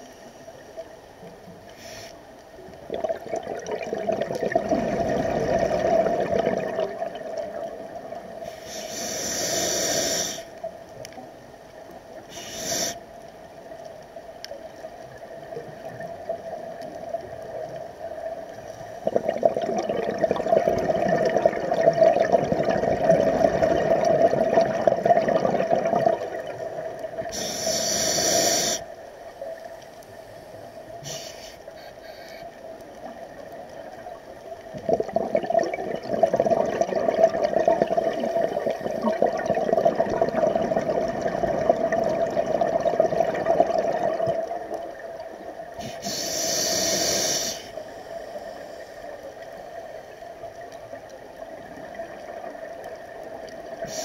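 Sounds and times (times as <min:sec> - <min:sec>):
regulator hiss of inhaled air: 0:01.7 - 0:02.3, 0:08.4 - 0:10.6, 0:12.3 - 0:13.1, 0:27.2 - 0:28.9, 0:30.4 - 0:32.5, 0:45.8 - 0:49.2, 0:53.8 - 0:54.0
exhaled bubbles crackling: 0:01.7 - 0:09.2, 0:13.7 - 0:28.8, 0:30.9 - 0:47.8, 0:49.0 - 0:54.0.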